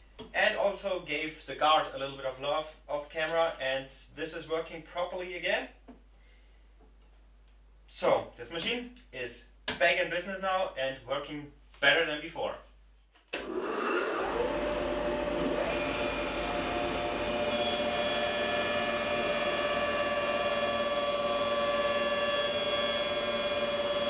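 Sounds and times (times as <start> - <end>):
jointer planer whining: 13.4 - 24.0.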